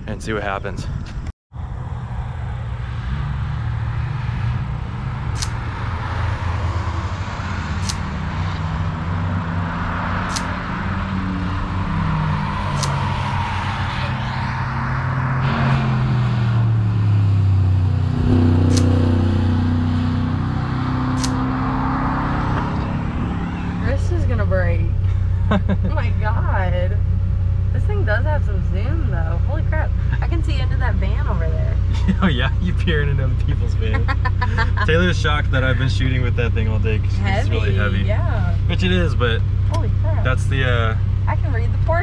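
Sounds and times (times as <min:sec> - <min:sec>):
race car engines passing: 0:01.6 - 0:42.0
sharp clicks: 0:10.3 - 0:10.5, 0:21.2 - 0:21.4.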